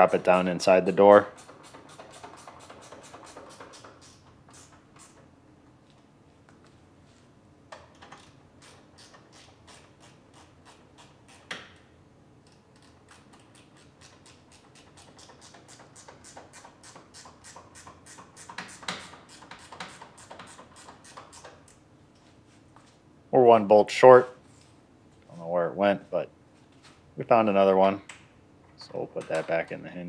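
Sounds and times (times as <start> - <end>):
hand ratchet clicking: 1.2 - 5.2, 7.8 - 11.6, 12.5 - 21.8.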